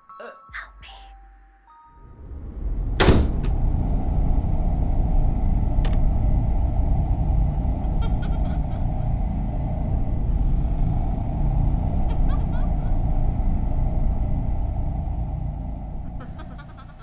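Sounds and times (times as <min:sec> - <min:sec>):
loud low rumble: 0:02.0 - 0:17.0
sharp hit: 0:02.9 - 0:03.8.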